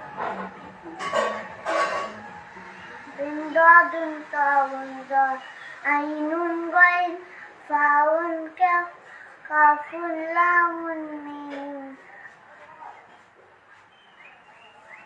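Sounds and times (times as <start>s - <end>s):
girl singing unaccompanied: 3.2s - 12.1s.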